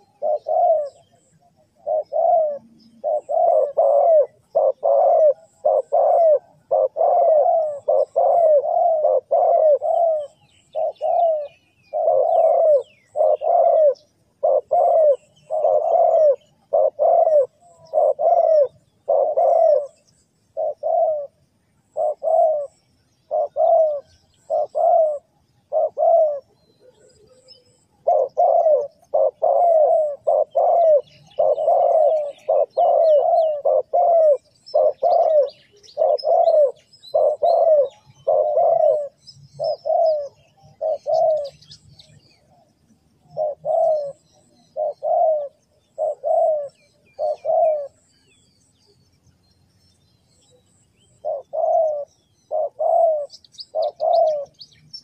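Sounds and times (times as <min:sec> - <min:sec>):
dove cooing: 0:00.0 - 0:49.0, 0:50.4 - 0:55.0
small birds chirping: 0:00.0 - 0:55.0.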